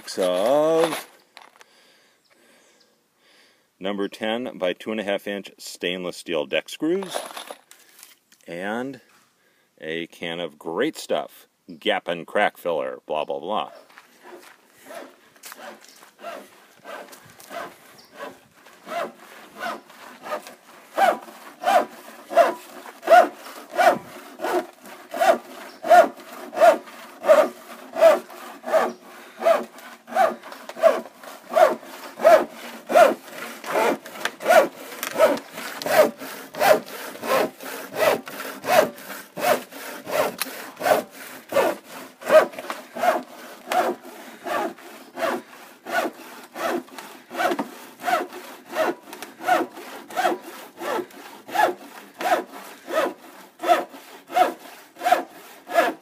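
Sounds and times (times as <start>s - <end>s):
handsaw cutting plastic: 0.0s - 1.1s, 14.2s - 56.0s.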